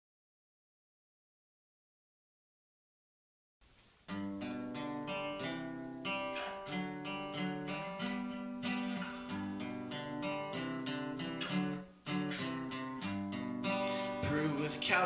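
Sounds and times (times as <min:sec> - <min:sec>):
acoustic guitar strumming chords: 0:04.1 - 0:15.0.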